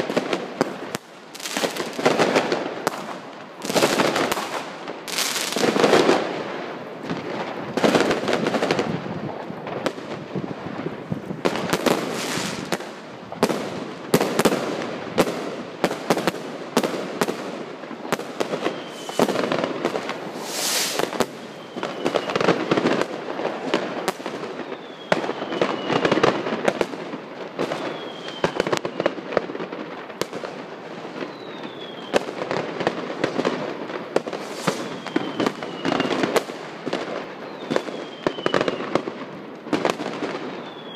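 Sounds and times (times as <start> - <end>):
fireworks bangs and crackling: 0.0 - 40.9
falling firework whistles: 18.4 - 23.3, 24.5 - 26.3, 27.6 - 29.2, 31.1 - 32.4, 34.2 - 36.5, 37.4 - 39.0, 39.8 - 40.9.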